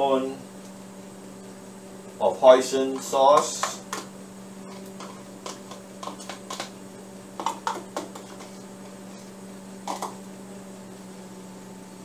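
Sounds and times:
spoon tapping plastic bowl: 0:03.0 - 0:04.1, 0:05.0 - 0:06.7, 0:07.4 - 0:08.6.

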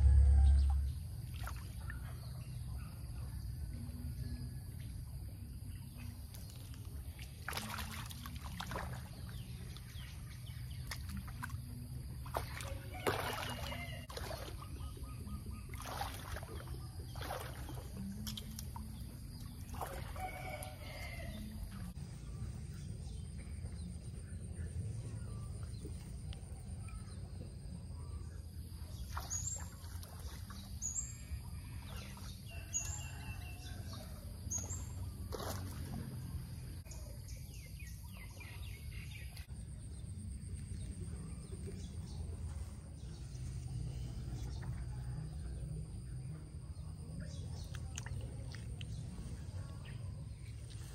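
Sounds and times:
steady low rumble: 0:00.0 - 0:07.2, 0:21.4 - 0:29.0, 0:38.6 - 0:50.9
bird calls: 0:12.3 - 0:21.8.

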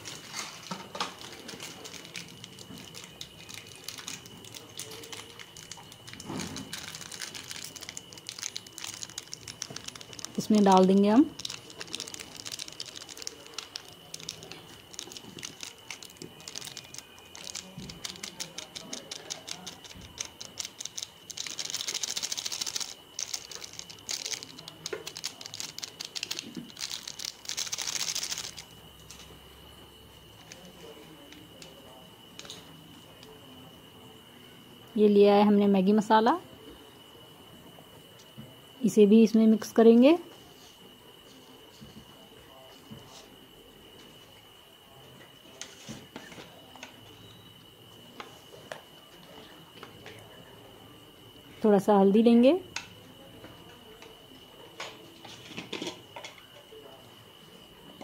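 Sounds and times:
foil sachet crinkling: 0:00.0 - 0:29.3.

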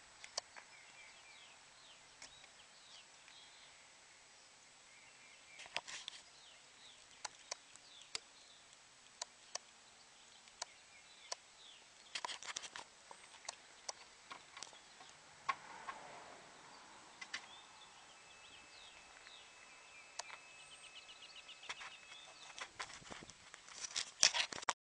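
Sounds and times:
faint bird chirps: 0:00.0 - 0:23.2
faint steady tone: 0:12.8 - 0:22.8.

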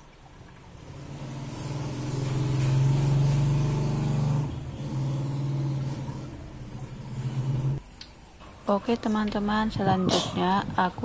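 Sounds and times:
vehicle engine running: 0:00.8 - 0:07.8.

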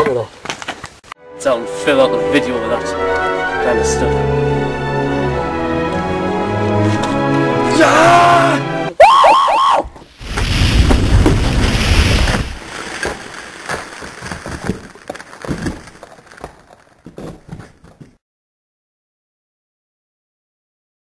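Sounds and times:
knocks and rustle: 0:00.0 - 0:01.0, 0:09.9 - 0:18.2
person whooping: 0:07.7 - 0:09.9.

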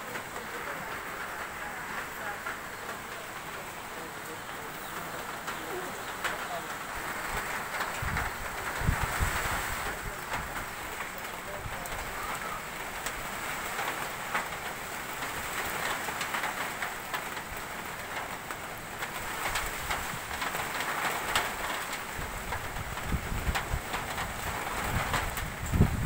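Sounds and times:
rain on a metal roof: 0:00.0 - 0:26.0
wind rumbling on microphone: 0:04.9 - 0:13.9, 0:19.2 - 0:26.0.

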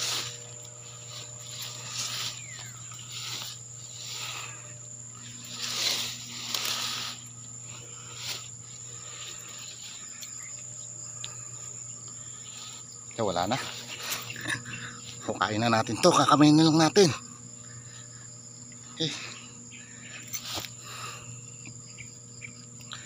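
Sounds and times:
footsteps through dense grass: 0:00.0 - 0:14.4
high-pitched insect drone: 0:00.0 - 0:23.0.

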